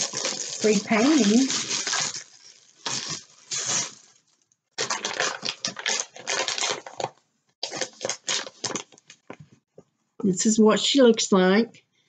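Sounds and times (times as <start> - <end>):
plastic packaging crackling: 0.0 - 9.4.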